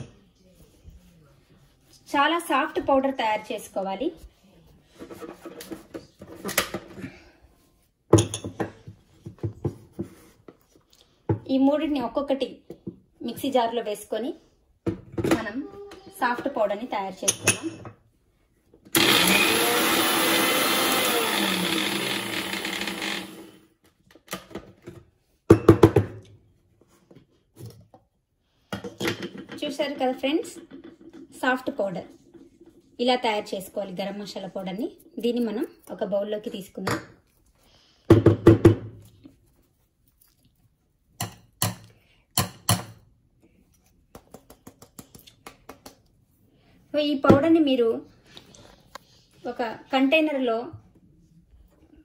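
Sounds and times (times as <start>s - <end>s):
mixer grinder grinding spices: 19.0s - 23.6s.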